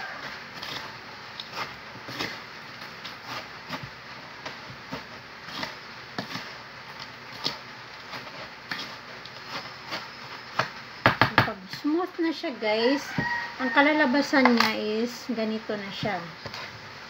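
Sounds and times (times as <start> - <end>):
spoon stirring crushed ice: 0.0 - 10.8.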